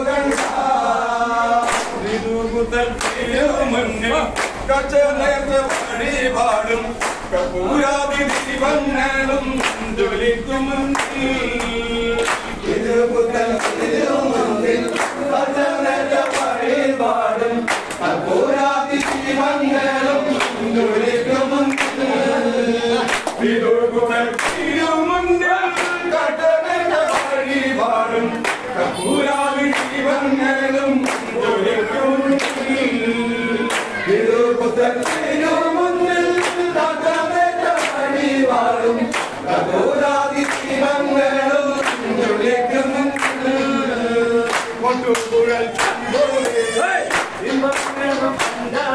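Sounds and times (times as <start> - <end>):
group singing: 0.0 - 48.9
hand claps: 0.2 - 0.7, 1.6 - 2.1, 2.7 - 16.7, 17.6 - 18.2, 18.9 - 22.1, 23.0 - 23.6, 24.2 - 25.0, 25.6 - 26.2, 27.0 - 27.8, 28.4 - 31.4, 32.2 - 32.9, 33.6 - 41.1, 41.7 - 43.6, 44.4 - 48.9.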